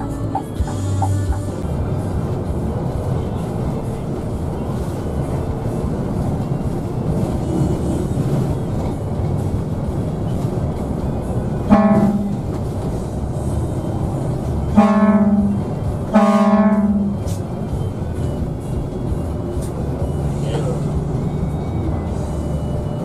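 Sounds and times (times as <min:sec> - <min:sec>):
moving bus rumble: 0:00.0 - 0:23.0
bus horn blasts: 0:11.5 - 0:12.6, 0:14.1 - 0:17.4.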